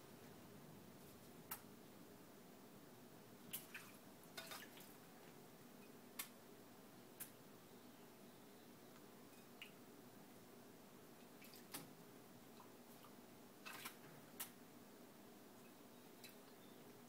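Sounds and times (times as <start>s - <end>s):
birds splashing in water: 3.5s - 5.0s, 12.6s - 14.6s
water dripping: 15.6s - 17.0s.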